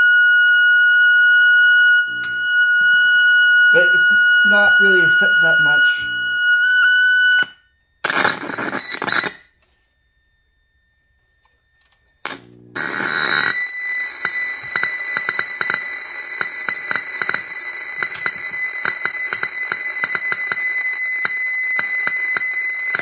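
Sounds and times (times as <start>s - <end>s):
shrill high electronic tone: 1.6s - 7.6s, 13.1s - 23.0s.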